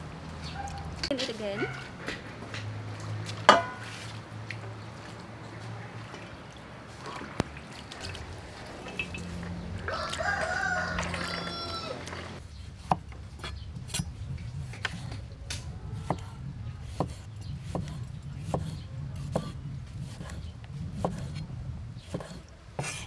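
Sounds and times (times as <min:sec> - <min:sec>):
rooster crowing: 0:09.8 - 0:12.4
cleaver chopping on wooden board: 0:12.8 - 0:14.1, 0:16.9 - 0:20.4, 0:21.0 - 0:21.4.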